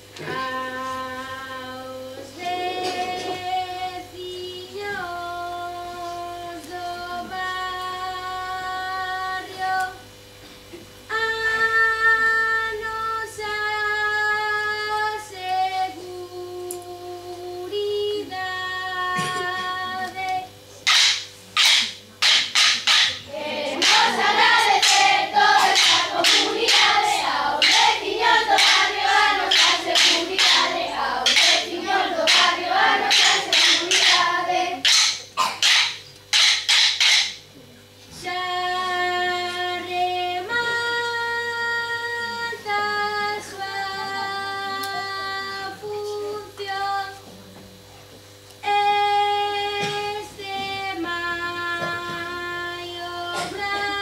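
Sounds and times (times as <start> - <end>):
children singing: 0.2 - 7.6, 19.2 - 37.2, 48.7 - 54.0
sharp rhythmic percussive strikes: 20.8 - 37.5.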